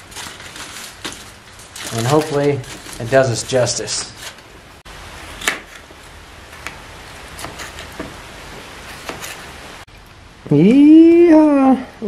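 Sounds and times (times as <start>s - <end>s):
tin foil crinkling: 0.0s - 4.5s.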